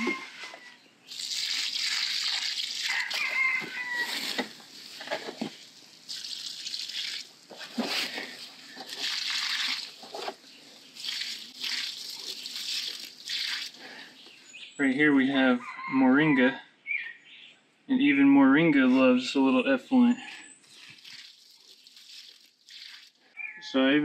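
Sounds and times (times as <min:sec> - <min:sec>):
liquid splashing onto soil: 0:01.1 - 0:03.4, 0:04.0 - 0:10.4, 0:11.0 - 0:14.0, 0:20.8 - 0:23.2.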